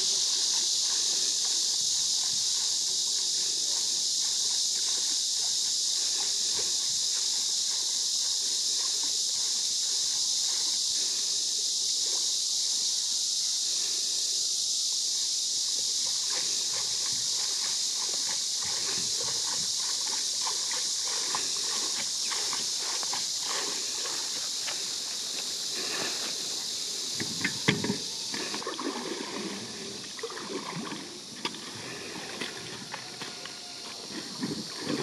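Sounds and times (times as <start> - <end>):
steady high hiss: 0.0 - 35.0
water splashing and sloshing: 16.0 - 35.0.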